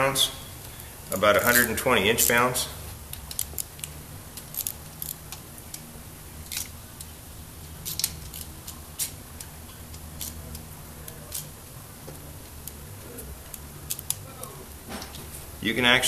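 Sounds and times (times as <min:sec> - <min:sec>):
low steady hum: 0:00.0 - 0:16.0
ratchet clicking: 0:03.1 - 0:05.8, 0:07.8 - 0:11.5.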